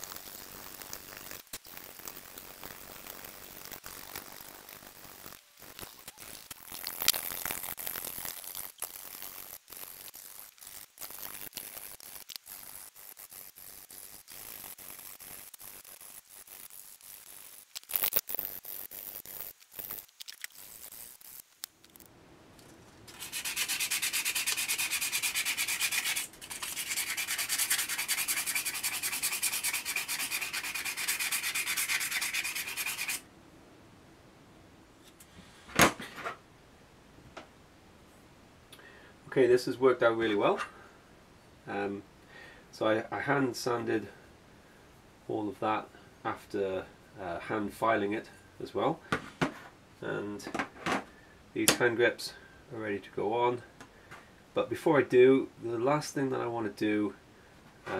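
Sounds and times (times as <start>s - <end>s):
fast hand sanding: 7.5s - 19.9s, 23.1s - 33.2s.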